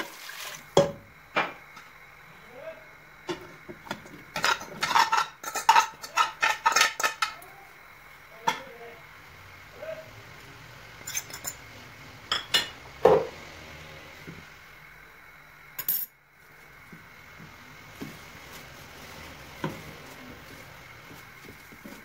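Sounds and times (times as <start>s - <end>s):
dishes clinking against pressure cooker: 3.3s - 7.4s.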